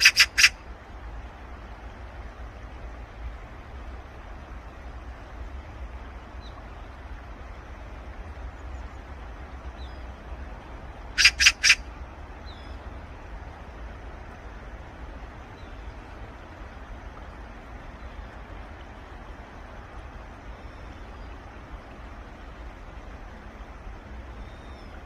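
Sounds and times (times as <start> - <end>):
magpie harsh chatter: 0.0 - 0.6, 11.2 - 11.8
low background rumble: 0.0 - 25.0
faint high bird chirps: 11.2 - 11.8.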